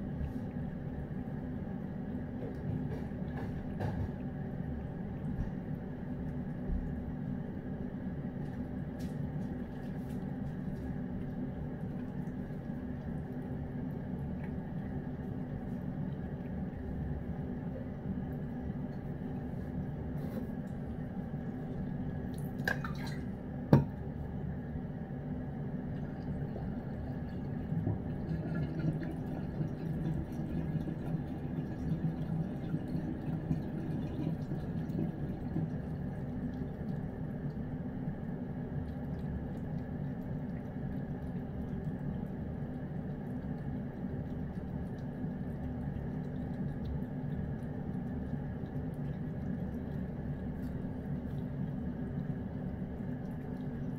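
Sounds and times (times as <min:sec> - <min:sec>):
steady low hum: 0:00.0 - 0:53.9
cat chewing and licking: 0:08.4 - 0:23.1, 0:25.8 - 0:53.9.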